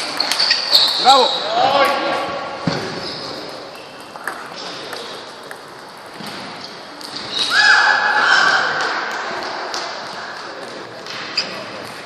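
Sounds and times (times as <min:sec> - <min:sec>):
large hall noise: 0:00.0 - 0:12.0
table tennis balls ticking: 0:03.6 - 0:07.2.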